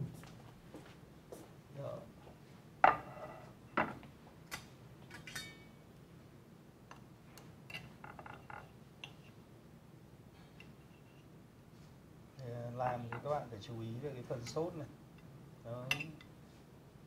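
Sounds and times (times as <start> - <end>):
plates and cutlery clinking: 2.8 - 5.8.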